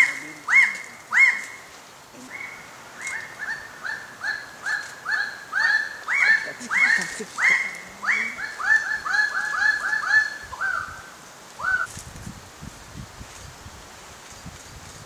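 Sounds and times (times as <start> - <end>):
birds calling loudly: 0.0 - 11.9.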